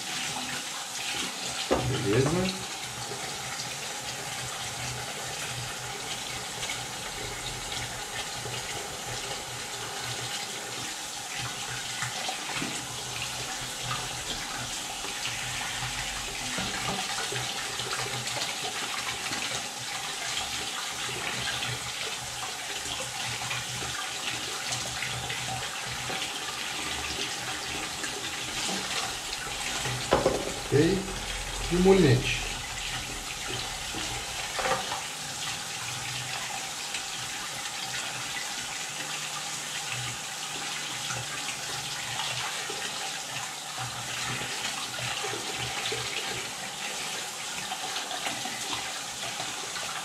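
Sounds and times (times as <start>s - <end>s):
tap water splashing: 1.6s - 2.5s, 11.9s - 12.9s, 13.8s - 18.6s, 27.8s - 30.8s, 32.9s - 35.2s.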